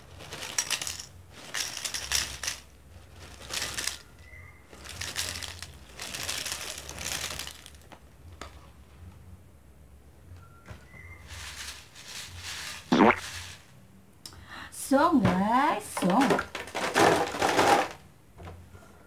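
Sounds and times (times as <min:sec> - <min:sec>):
crackers rattling into glass bowl: 0:00.0 - 0:07.9, 0:16.1 - 0:18.0
plastic packet rustling: 0:00.0 - 0:08.0, 0:11.2 - 0:13.7.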